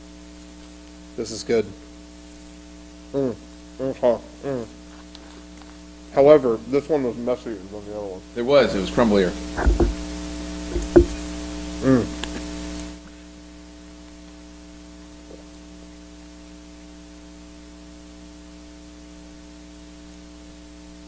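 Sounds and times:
faint hiss: 0.0 - 13.5
electrical mains hum: 0.0 - 21.0
short vocal sound: 3.1 - 4.8, 11.8 - 12.4.

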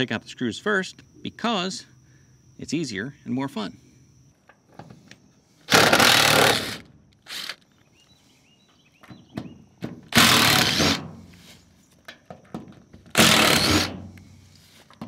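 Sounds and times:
impact driver hammering: 10.1 - 11.0.

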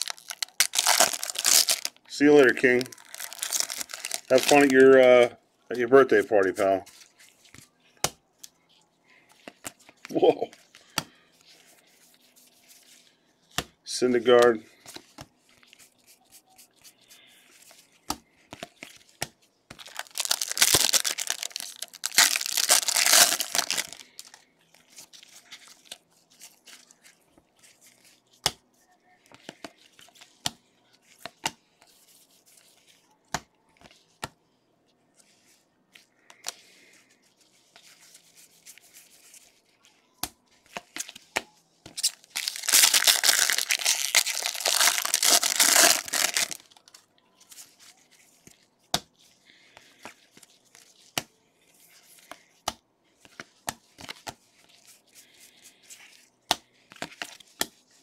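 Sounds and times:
wrappers tearing and crinkling: 0.0 - 5.0, 19.8 - 24.4, 42.0 - 47.0
cards rustling and clicking: 0.0 - 5.2, 9.2 - 28.6, 37.6 - 58.0.

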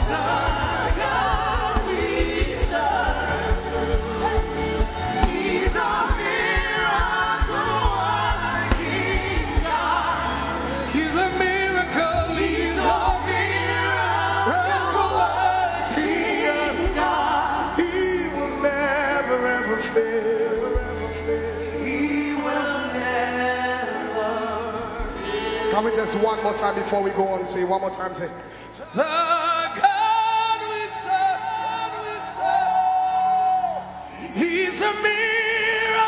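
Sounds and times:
band with bass line: 0.0 - 27.3
voices singing gospel: 0.0 - 36.0.

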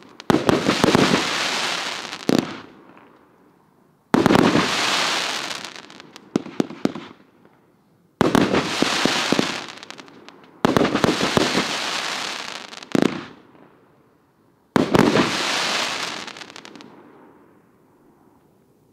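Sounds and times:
firework bangs with crackle: 0.0 - 2.7, 4.1 - 7.2, 8.2 - 13.4, 14.8 - 16.9.

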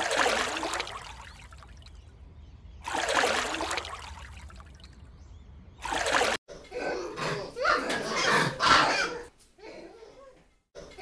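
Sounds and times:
water splashing: 0.0 - 2.2, 2.8 - 5.2, 5.8 - 6.4
water trickling: 0.0 - 6.4.

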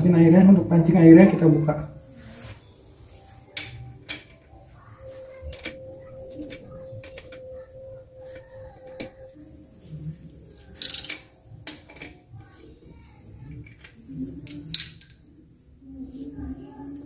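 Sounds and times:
metallic clink: 10.8 - 11.3, 14.5 - 15.3.

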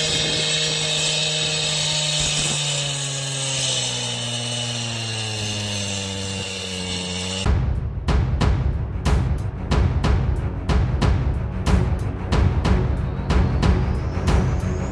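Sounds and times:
chainsaw cutting wood: 0.0 - 7.5.

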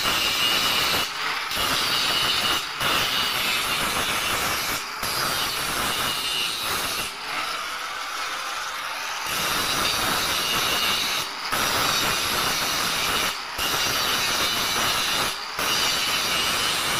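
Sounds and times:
angle grinder grinding steel: 0.0 - 16.9.

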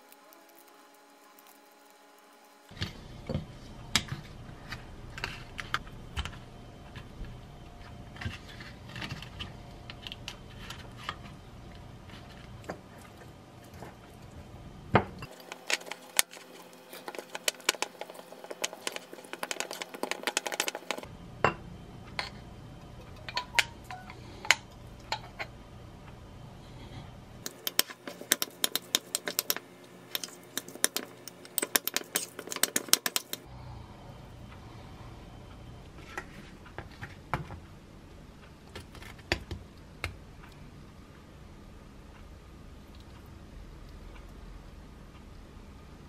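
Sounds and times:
fork clinking and scraping glass bowl: 27.4 - 33.4.

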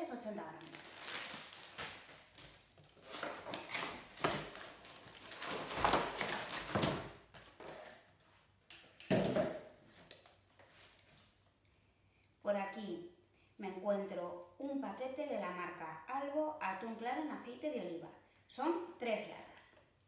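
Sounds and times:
packaging rustling in box: 0.6 - 7.9.

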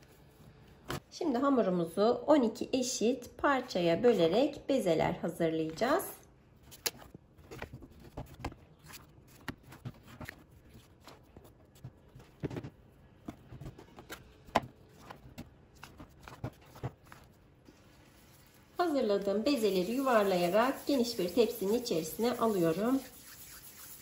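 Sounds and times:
dough handling sounds: 6.5 - 24.0.

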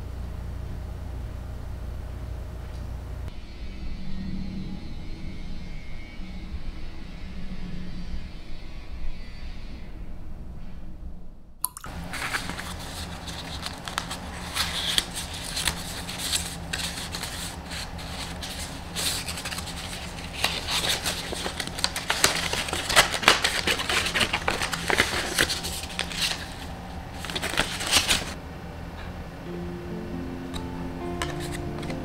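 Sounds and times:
paper packaging crinkling: 11.9 - 28.4, 31.1 - 32.0.

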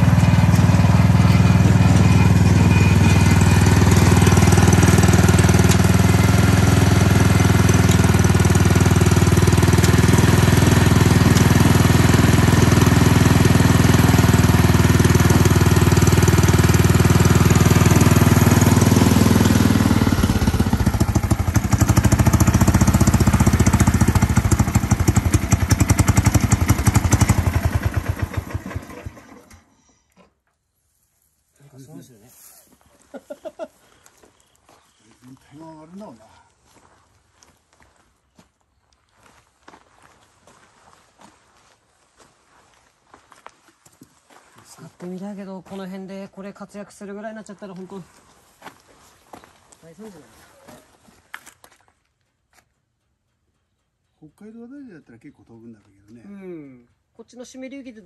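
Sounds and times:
snowblower engine running: 0.0 - 29.7.

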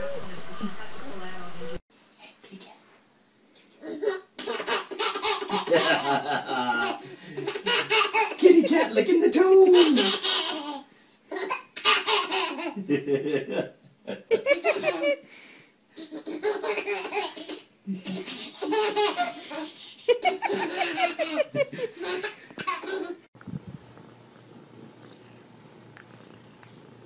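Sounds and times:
baby laughing: 3.8 - 8.6, 9.6 - 12.8, 16.0 - 23.2.

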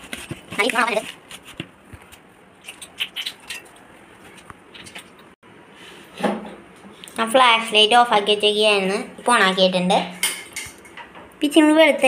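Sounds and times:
hand mixing dough in steel bowl: 0.0 - 5.4.

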